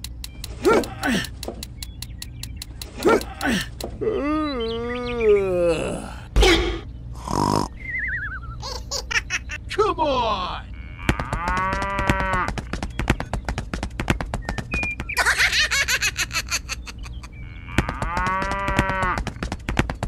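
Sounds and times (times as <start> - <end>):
rapid ticking: 0.0 - 4.0
cartoon groaning voice: 3.0 - 7.8
cow mooing: 10.7 - 12.5, 17.6 - 19.2.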